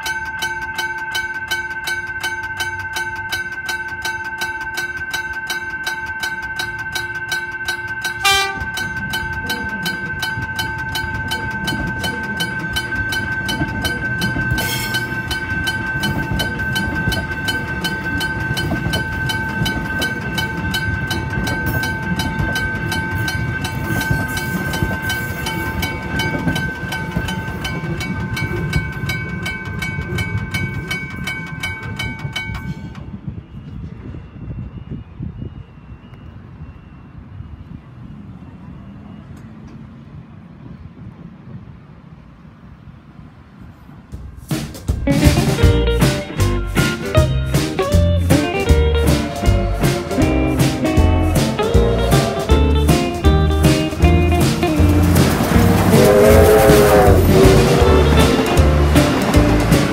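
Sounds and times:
level crossing bell ringing: 0:00.0 - 0:32.9, 0:45.4 - 0:59.9
electric train rumbling: 0:00.0 - 0:59.9
train horn toot: 0:08.2 - 0:09.0, 0:49.1 - 0:52.8, 0:55.0 - 0:59.9.

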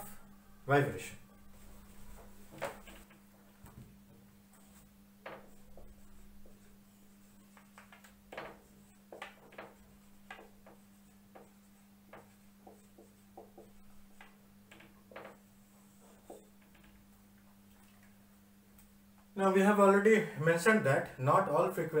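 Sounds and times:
steady low hum: 0:00.0 - 0:22.0
marker writing on whiteboard: 0:04.5 - 0:16.9.

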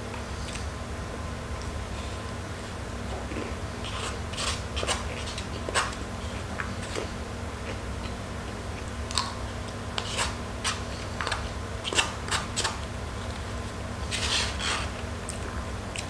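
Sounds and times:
steady low hum: 0:00.0 - 0:16.0
plastic spoon scraping paper cup: 0:03.8 - 0:05.9, 0:10.0 - 0:12.8.

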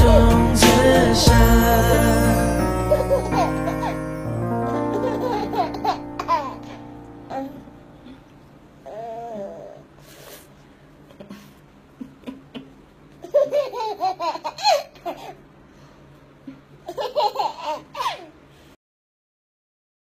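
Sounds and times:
toddler giggling: 0:02.9 - 0:07.6, 0:12.0 - 0:15.4, 0:16.8 - 0:18.4.

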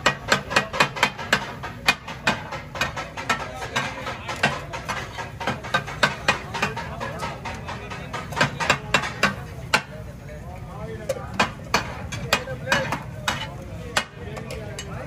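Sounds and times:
metal spatula striking griddle: 0:00.0 - 0:10.0, 0:11.0 - 0:15.0.

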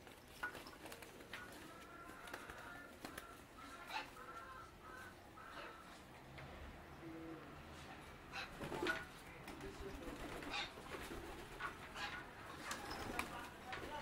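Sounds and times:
pigeons cooing: 0:06.9 - 0:13.4.

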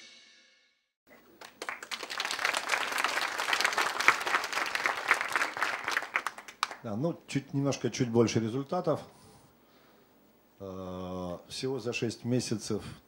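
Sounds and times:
audience applauding: 0:01.1 - 0:06.9.

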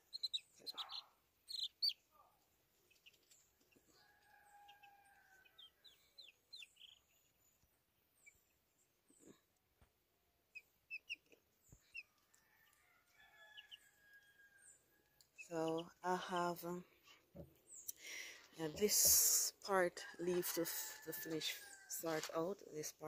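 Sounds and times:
baby chicks peeping: 0:00.0 - 0:09.5, 0:10.5 - 0:16.8.

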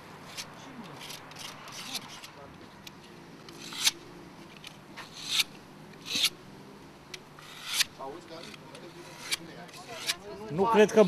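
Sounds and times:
tool scraping paint off stone: 0:07.4 - 0:10.2
faint scratching: 0:07.4 - 0:10.4.

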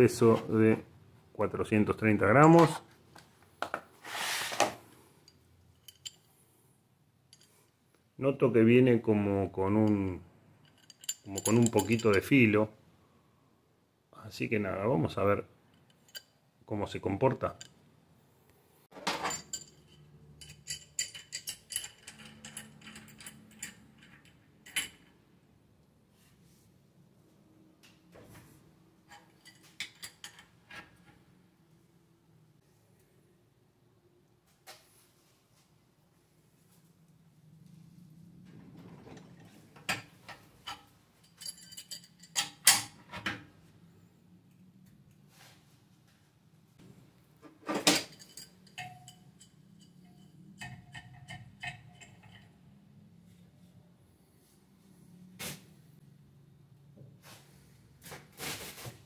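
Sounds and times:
wrench clinking on metal: 0:05.6 - 0:06.3, 0:10.6 - 0:12.5, 0:15.7 - 0:16.4, 0:19.1 - 0:25.2, 0:29.1 - 0:30.6, 0:39.9 - 0:43.0, 0:47.8 - 0:52.8.

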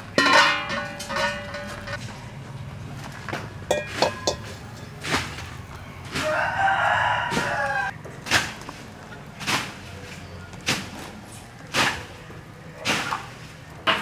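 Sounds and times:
rooster crowing: 0:05.8 - 0:08.0.

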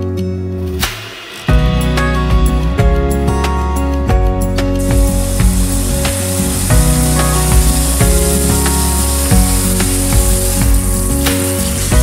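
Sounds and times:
background music with bass: 0:00.0 - 0:12.0
tap water running into sink: 0:04.8 - 0:12.0.

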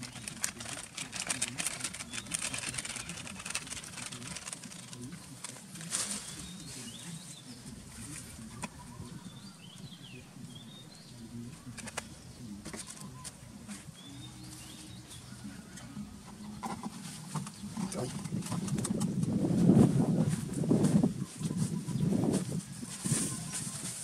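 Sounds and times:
packet and bottle rustling: 0:00.0 - 0:06.5
faint low hum: 0:00.0 - 0:24.0
small birds chirping: 0:00.0 - 0:24.0.

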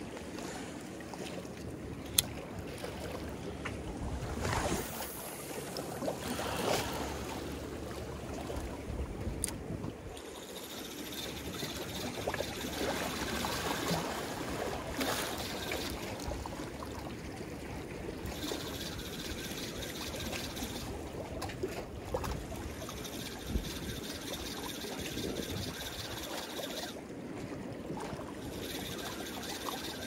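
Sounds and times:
water lapping against rocks: 0:00.0 - 0:30.0
small water splashes: 0:11.4 - 0:30.0.

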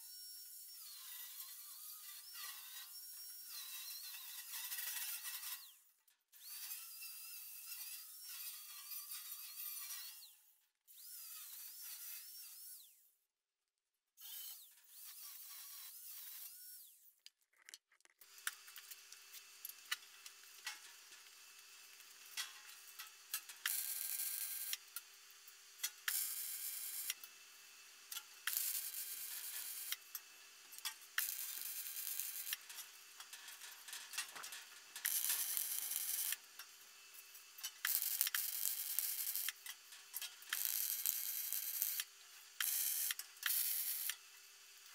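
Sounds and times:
arc welder crackling: 0:18.2 - 0:25.1, 0:25.8 - 0:27.3, 0:28.1 - 0:44.9.

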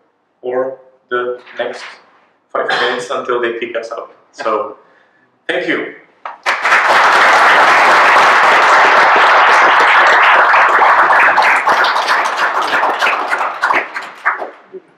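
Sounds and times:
audience applauding: 0:06.3 - 0:14.7.

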